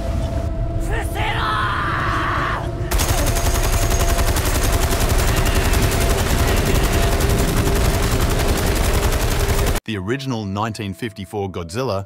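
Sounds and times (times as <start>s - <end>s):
machine gun firing burst: 2.9s - 9.8s.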